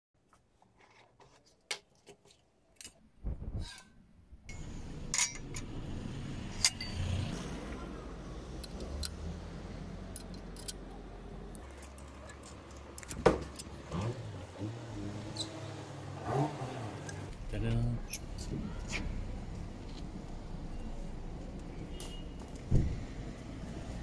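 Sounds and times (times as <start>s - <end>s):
low outdoor rumble: 4.3s - 15.5s
metallic clinks of bolts on plate: 5.1s - 5.7s.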